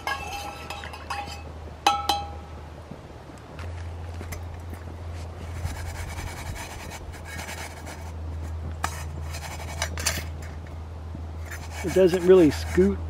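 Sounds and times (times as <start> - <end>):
utensil scraping frying pan: 0.0 - 1.5, 5.5 - 10.5, 11.4 - 13.0
steady low hum: 0.0 - 13.0.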